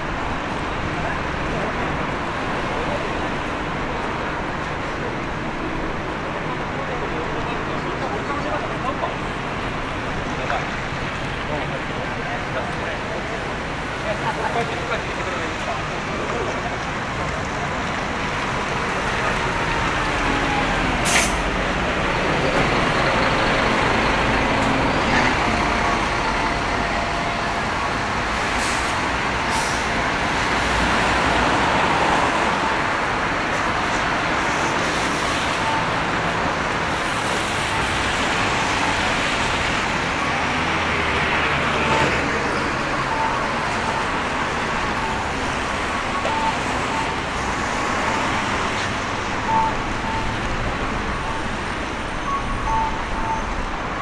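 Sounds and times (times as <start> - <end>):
tyres hissing on wet road: 20.7 - 21.6, 28.3 - 32.6.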